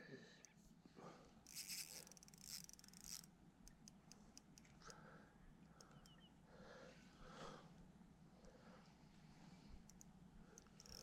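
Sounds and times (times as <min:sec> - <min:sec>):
faint clicks: 0:01.4 - 0:06.3, 0:07.8 - 0:11.0.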